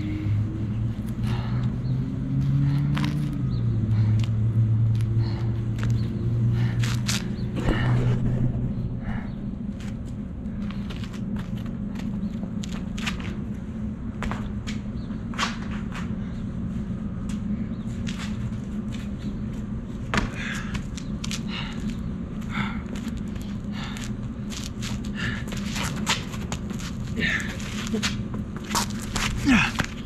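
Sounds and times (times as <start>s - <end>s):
steady low rumble: 0.0s - 30.0s
footsteps on hard ground: 6.8s - 13.4s, 23.0s - 30.0s.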